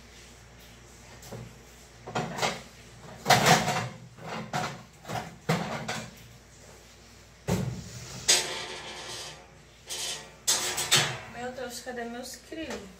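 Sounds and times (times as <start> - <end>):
rummaging in kitchen cupboard: 1.0 - 6.2.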